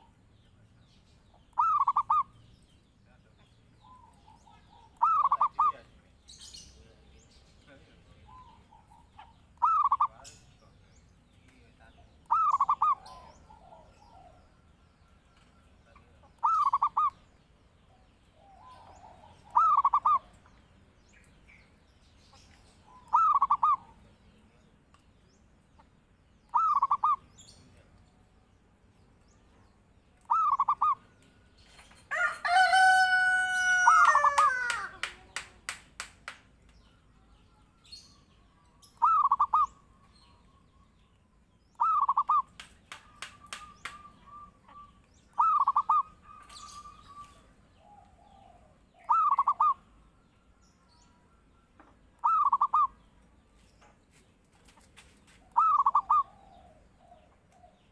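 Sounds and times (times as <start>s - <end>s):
dove cooing: 1.5s - 2.3s, 4.0s - 5.8s, 8.3s - 10.1s, 12.3s - 14.4s, 16.4s - 17.2s, 18.4s - 20.3s, 22.9s - 24.0s, 26.5s - 27.2s, 30.3s - 31.0s, 39.0s - 39.7s, 43.9s - 47.2s, 47.8s - 49.8s, 52.2s - 52.9s, 55.5s - 57.8s
rooster crowing: 32.1s - 35.0s.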